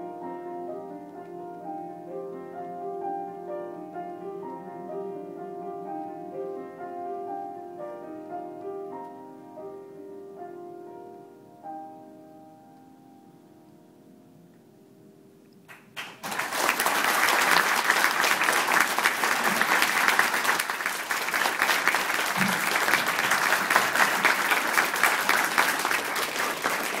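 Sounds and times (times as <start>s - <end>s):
piano chord: 0.0s - 15.5s
audience applause: 15.7s - 27.0s.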